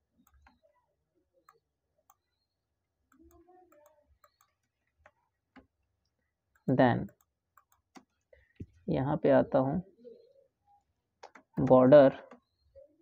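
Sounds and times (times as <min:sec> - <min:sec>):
keyboard and mouse clicks: 0:00.1 - 0:00.7, 0:03.1 - 0:05.8, 0:06.6 - 0:08.7, 0:11.2 - 0:12.5.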